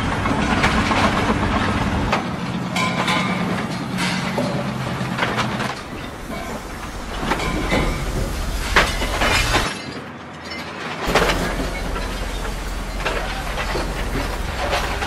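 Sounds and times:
porcelain toilets smashing: 5.8s - 9.8s.

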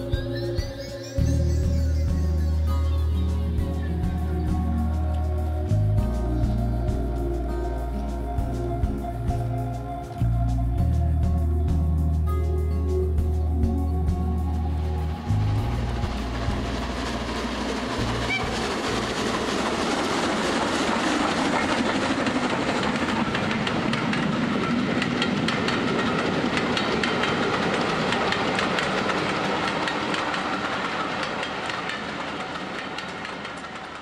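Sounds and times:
train rushing noise: 0.0s - 12.2s, 13.0s - 34.0s
train wheels clickety-clack: 15.6s - 34.0s.

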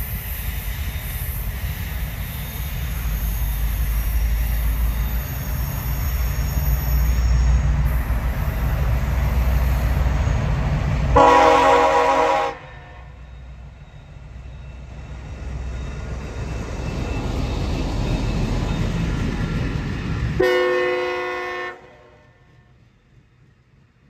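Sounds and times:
train engine and cars rumbling: 0.0s - 24.0s
locomotive air horn blasts: 11.1s - 13.2s, 20.4s - 22.5s.

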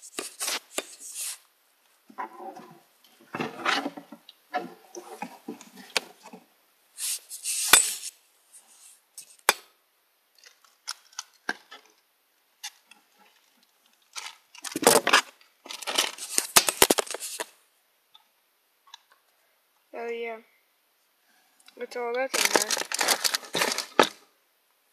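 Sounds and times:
small objects rustling and clicking: 0.0s - 1.4s, 7.0s - 9.5s, 10.4s - 12.0s, 12.6s - 17.5s, 21.6s - 24.2s.

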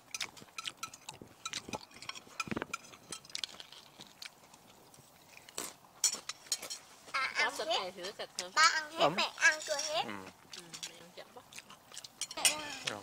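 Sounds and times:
crunchy chewing of rice crackers: 0.0s - 6.9s, 10.0s - 13.0s
spoons scraping bowls: 0.1s - 3.9s, 9.4s - 11.1s, 12.0s - 13.0s.

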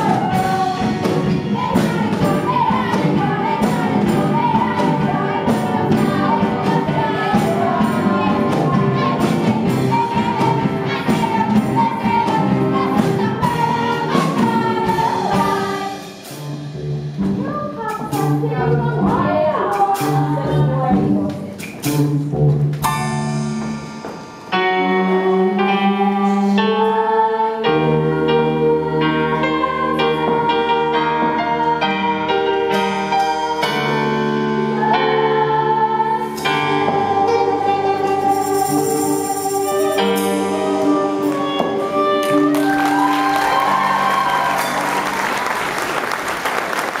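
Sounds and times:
live music held chords: 0.0s - 47.0s
applause: 42.2s - 47.0s.

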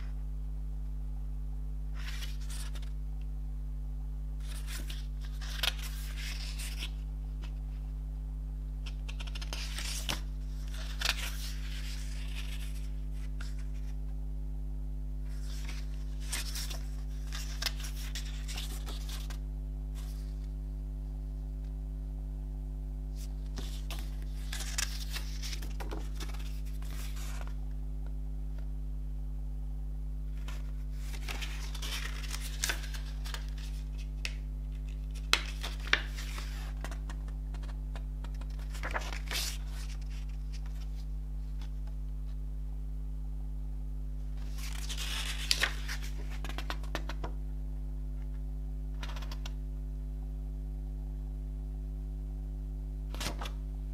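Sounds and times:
steady low hum: 0.0s - 53.9s
paper pages rustling: 2.0s - 2.9s, 4.4s - 7.6s, 8.8s - 14.0s, 15.3s - 19.4s, 20.0s - 20.5s, 23.2s - 27.6s, 30.3s - 42.1s, 44.4s - 47.4s, 49.0s - 49.6s, 53.1s - 53.6s.

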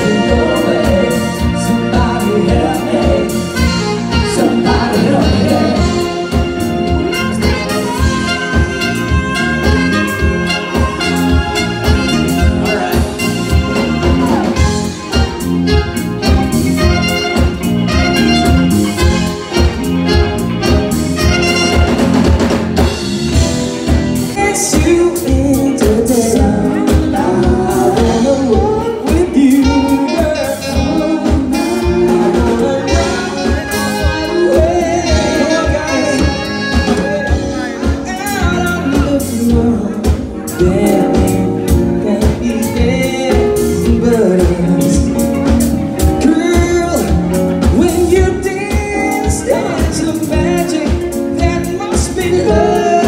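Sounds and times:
person singing: 0.0s - 21.9s, 24.2s - 53.0s
live band playing dance music: 0.0s - 53.0s
steady drum beat: 0.0s - 53.0s.

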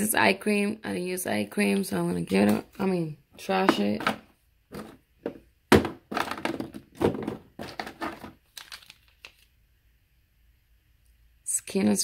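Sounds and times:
plastic packaging crinkling: 6.1s - 9.6s.

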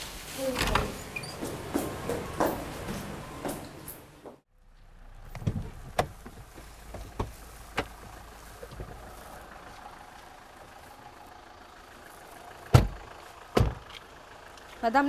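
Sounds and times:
car door opening: 5.3s - 8.0s, 12.7s - 13.8s.

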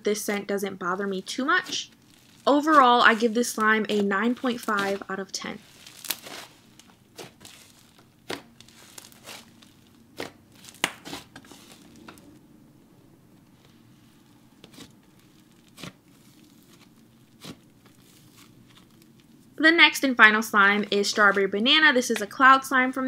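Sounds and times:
slime crackling and popping: 0.3s - 12.3s, 14.6s - 19.6s.

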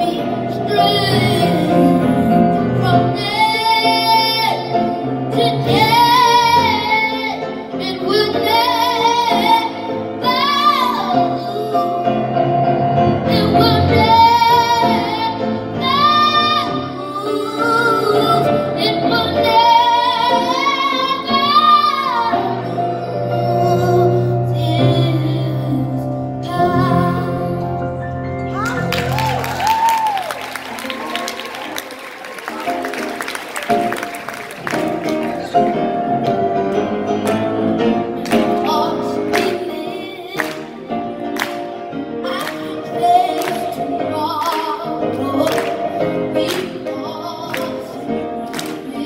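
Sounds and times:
boy singing into a microphone: 0.0s - 12.4s, 13.3s - 27.9s, 37.8s - 41.0s, 42.2s - 49.0s
instrumental accompaniment: 0.0s - 49.0s.

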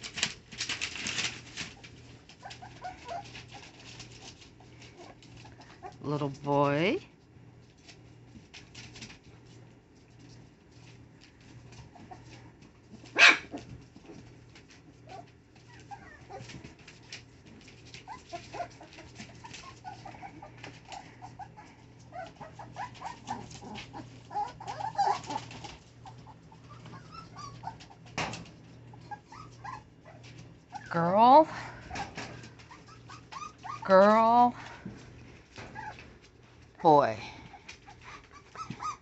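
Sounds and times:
paws scratching on newspaper: 0.0s - 39.0s
puppies whimpering and squeaking: 1.0s - 6.1s, 11.6s - 12.6s, 13.5s - 16.8s, 17.6s - 36.4s, 37.4s - 39.0s.

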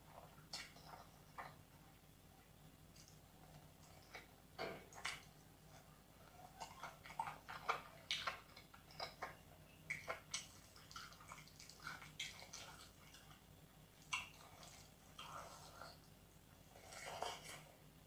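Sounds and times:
fingers squelching rice and curry: 2.9s - 13.4s.

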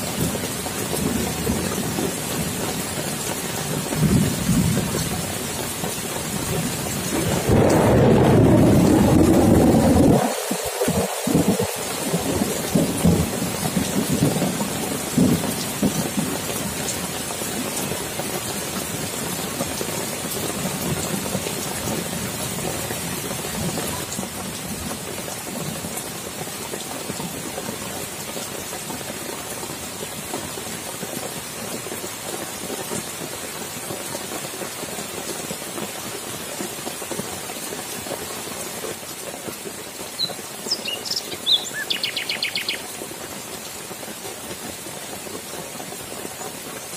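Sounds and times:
heavy rain on foliage and water: 0.0s - 46.9s
rolling thunder rumble: 7.1s - 16.2s.

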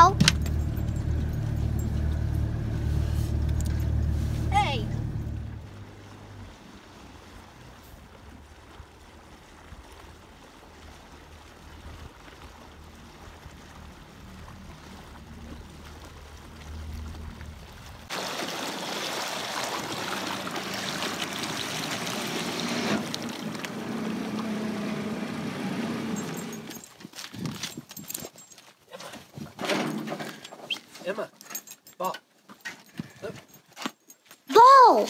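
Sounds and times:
outboard motor running: 0.0s - 9.6s, 12.5s - 17.8s, 19.8s - 26.8s.

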